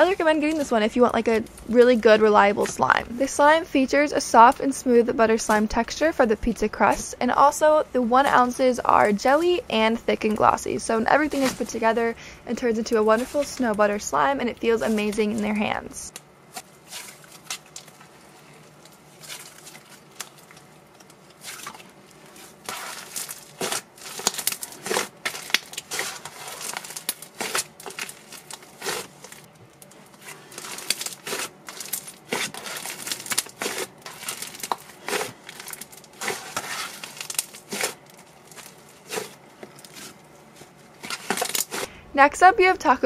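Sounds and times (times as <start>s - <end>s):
slime crackling and popping: 16.5s - 40.2s.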